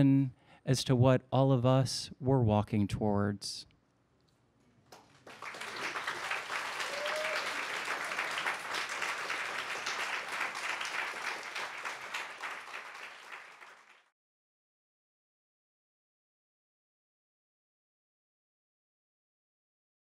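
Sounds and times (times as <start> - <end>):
audience applauding: 4.9 - 14.1.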